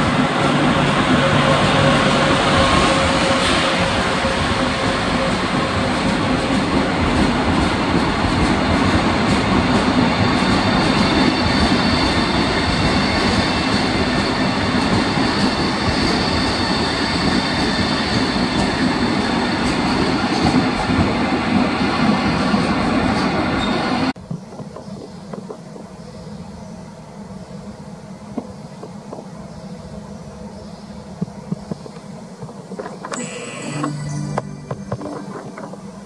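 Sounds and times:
train wheels rumbling on rails: 0:00.0 - 0:33.2
high whine: 0:33.0 - 0:36.0.

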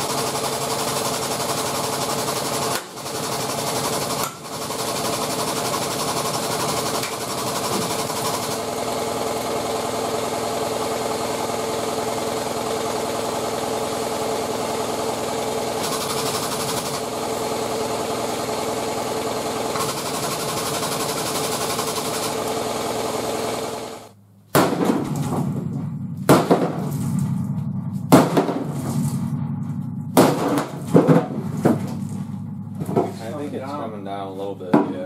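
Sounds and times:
hydraulic pump running: 0:00.0 - 0:35.0
sharp metal knocks and clanks: 0:24.6 - 0:27.2, 0:28.1 - 0:29.0, 0:30.1 - 0:32.0.

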